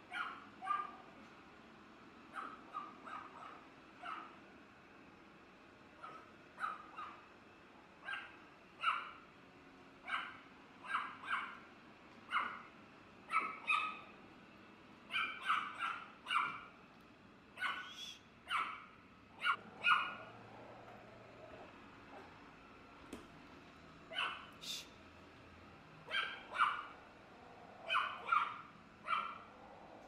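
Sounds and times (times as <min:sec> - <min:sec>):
small dog yapping: 0:00.1 - 0:01.0, 0:02.3 - 0:04.4, 0:06.0 - 0:07.2, 0:08.0 - 0:09.2, 0:10.0 - 0:11.6, 0:12.3 - 0:12.7, 0:13.3 - 0:14.1, 0:15.1 - 0:16.7, 0:17.6 - 0:20.5, 0:24.1 - 0:24.6, 0:26.1 - 0:27.0, 0:27.8 - 0:29.6.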